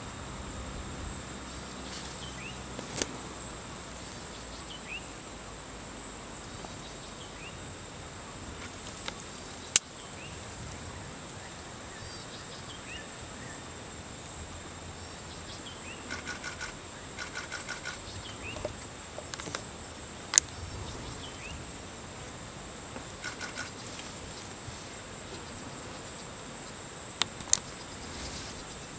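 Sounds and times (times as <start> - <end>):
insect chorus buzzing: 0.0 - 28.9
sharp clicks: 16.1 - 19.6, 23.2 - 23.8.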